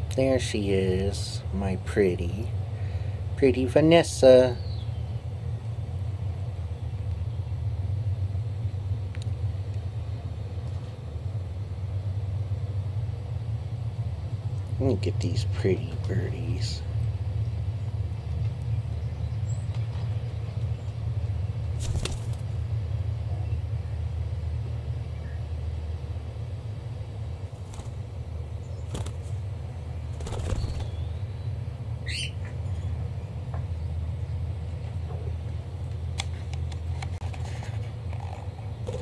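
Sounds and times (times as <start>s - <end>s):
steady low hum: 0.0s - 39.0s
birds flapping wings: 21.7s - 22.6s, 27.5s - 28.2s, 28.8s - 31.1s
birds shuffling: 21.7s - 22.6s, 27.4s - 31.1s
bird chirping: 30.3s - 32.9s.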